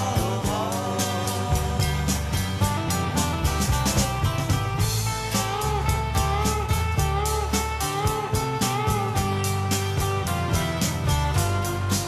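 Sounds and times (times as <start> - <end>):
guitar music with steady beat: 0.0 - 12.0.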